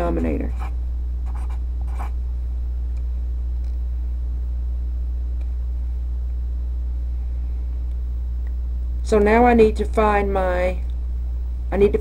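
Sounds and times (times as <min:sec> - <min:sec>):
steady low hum: 0:00.0 - 0:12.0
felt-tip marker writing on paper: 0:01.3 - 0:02.1.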